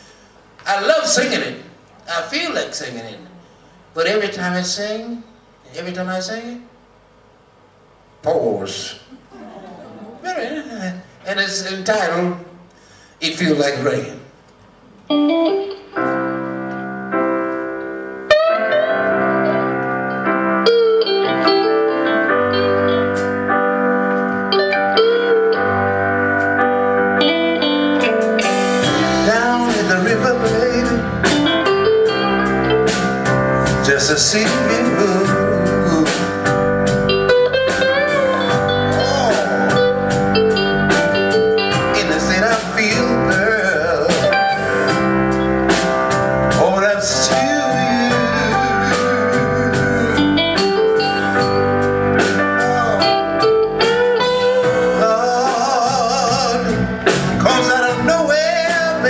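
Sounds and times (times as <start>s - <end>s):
blues band playing: 14.8s - 59.0s
man singing: 28.8s - 31.4s, 33.8s - 36.5s, 38.1s - 40.0s, 41.7s - 45.0s, 46.5s - 51.4s, 52.3s - 59.0s.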